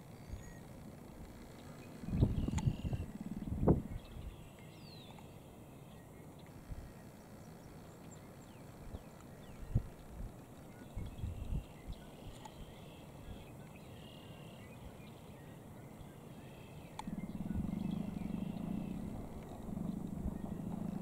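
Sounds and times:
turkey drumming low hum: 0.0 - 4.4, 16.9 - 21.0
small birds chirping: 0.0 - 21.0.

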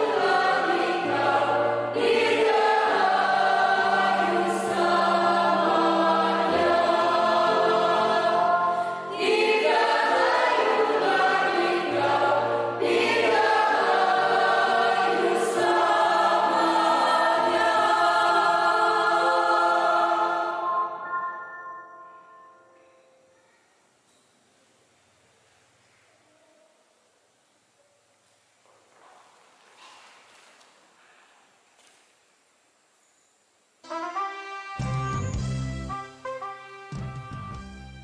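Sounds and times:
mixed choir singing: 0.0 - 21.5.

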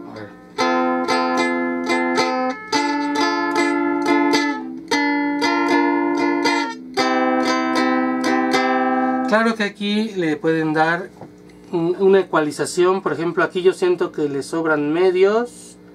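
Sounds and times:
amplified ukulele strumming: 0.0 - 9.3.

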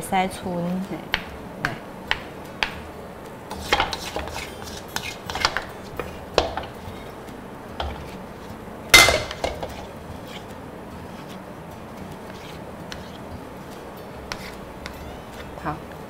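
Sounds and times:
utensils scraping a metal wok: 3.5 - 7.2, 7.8 - 11.4, 12.2 - 13.3, 14.2 - 15.6.

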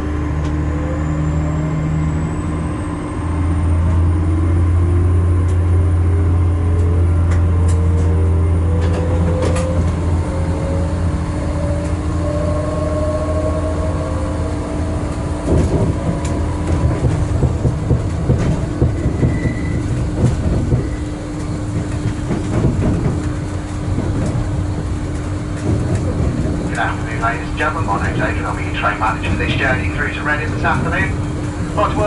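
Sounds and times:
train rising whine: 0.0 - 32.0
train wheels clattering: 15.1 - 32.0.

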